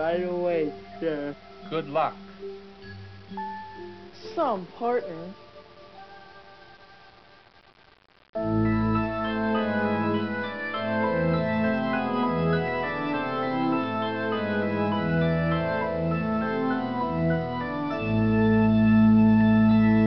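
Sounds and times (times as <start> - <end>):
organ chords: 8.4 - 20.0.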